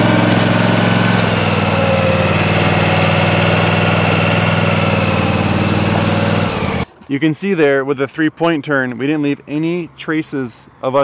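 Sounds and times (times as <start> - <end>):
mower engine running: 0.0 - 6.9.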